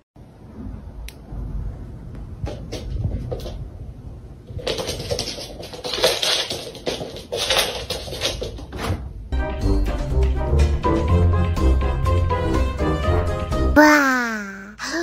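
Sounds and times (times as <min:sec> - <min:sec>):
cat paws scrabbling on hard floor: 0:02.4 - 0:03.7, 0:04.5 - 0:09.0
upbeat brass music: 0:09.4 - 0:13.8.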